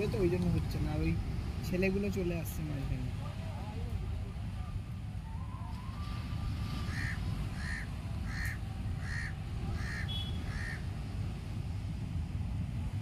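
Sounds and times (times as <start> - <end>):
wind and surf rumble: 0.0 - 13.0
bird calling: 6.8 - 10.9.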